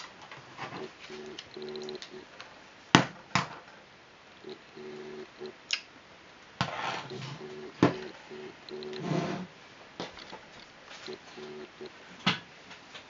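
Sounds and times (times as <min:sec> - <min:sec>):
handling noise: 0:00.0 - 0:02.4, 0:06.6 - 0:11.9.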